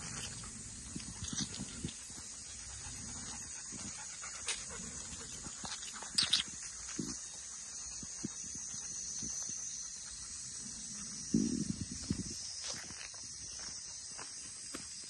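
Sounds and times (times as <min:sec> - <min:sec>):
steady high hiss: 0:00.0 - 0:15.0
footsteps and scuffling: 0:11.8 - 0:15.0.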